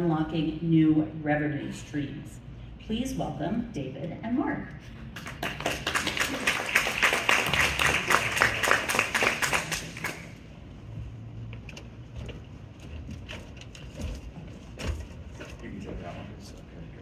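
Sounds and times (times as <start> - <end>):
audience applauding: 5.2 - 10.4.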